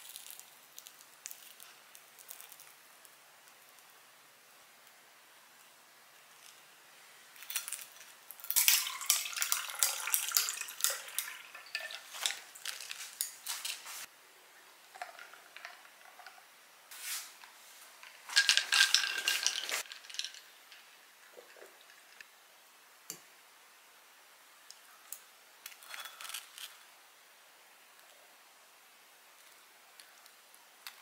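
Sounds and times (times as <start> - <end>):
ice cubes clinking in a glass: 8.5 - 13.8, 18.3 - 20.5.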